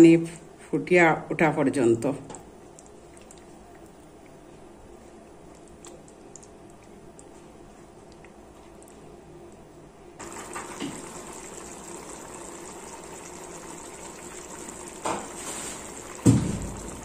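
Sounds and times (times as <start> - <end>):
curry bubbling in a pan: 10.2 - 17.0
knock: 16.2 - 16.7.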